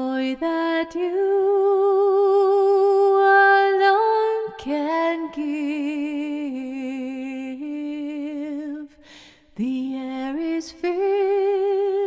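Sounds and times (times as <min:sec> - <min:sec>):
person singing devotional song: 0:00.0 - 0:12.0.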